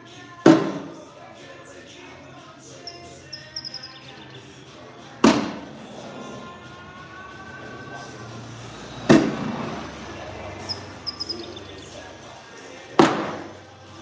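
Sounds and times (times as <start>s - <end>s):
bags thudding on wooden board: 5.2s - 5.6s, 13.0s - 13.5s.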